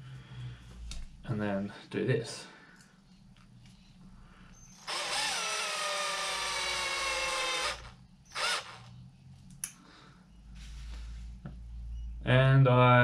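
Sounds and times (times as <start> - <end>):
cordless drill whining: 4.7 - 9.0.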